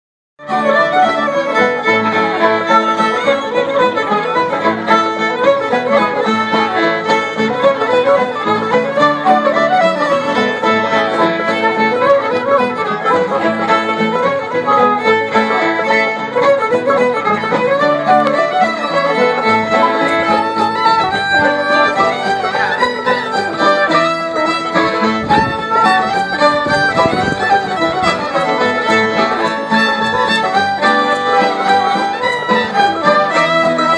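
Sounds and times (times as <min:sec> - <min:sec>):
fiddles playing melody: 0:00.4 - 0:33.9
plucked strings: 0:00.4 - 0:33.9
strummed acoustic guitars: 0:00.4 - 0:33.9.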